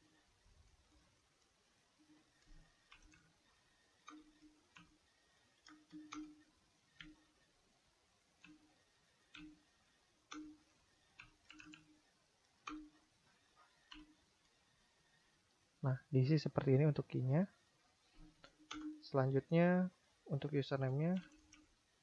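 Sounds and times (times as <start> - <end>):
keyboard keystrokes: 11.2 - 11.9, 18.6 - 19.0.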